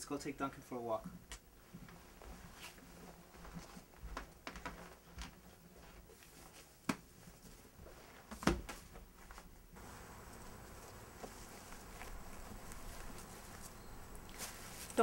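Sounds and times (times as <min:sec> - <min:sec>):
soft rustles: 0:01.6 - 0:15.0
faint steady hiss: 0:05.2 - 0:15.0.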